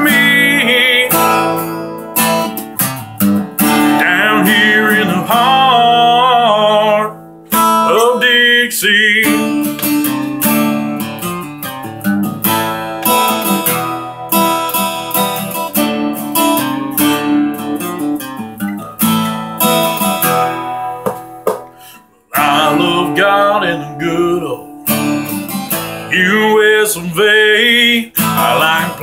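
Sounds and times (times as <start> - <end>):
acoustic guitar strumming: 0.0 - 29.0.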